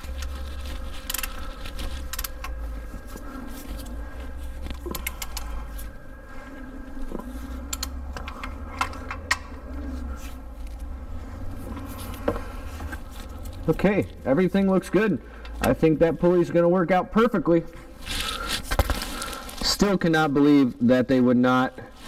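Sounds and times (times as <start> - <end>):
low steady hum: 0.0 - 22.0
metallic clicks of tools handled: 2.1 - 2.6, 4.7 - 5.5, 7.7 - 9.6.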